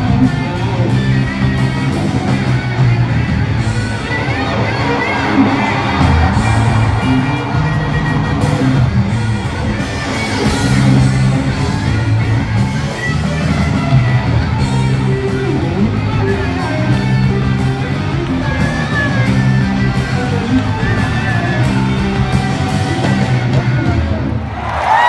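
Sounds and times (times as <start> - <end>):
crowd noise: 0.0 - 25.0
live rock band: 0.0 - 25.0.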